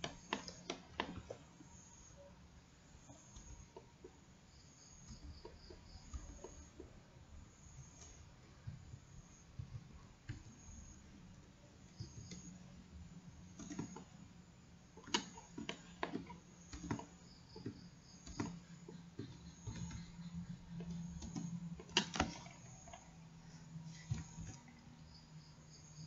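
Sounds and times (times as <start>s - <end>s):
mouse and keyboard clicks: 0.0s - 1.4s, 4.9s - 6.9s, 12.0s - 12.6s, 13.5s - 14.2s, 15.0s - 23.0s
faint low hum: 0.0s - 26.0s.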